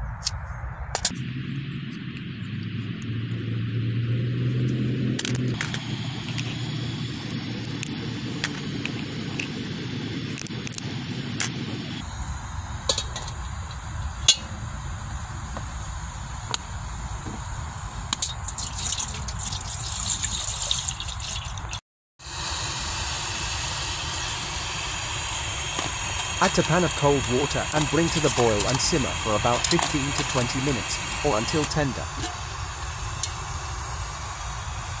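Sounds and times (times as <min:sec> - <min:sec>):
outdoor background noise: 0:00.0 - 0:35.0
water pouring into metal pot: 0:18.3 - 0:21.8, 0:24.9 - 0:32.4.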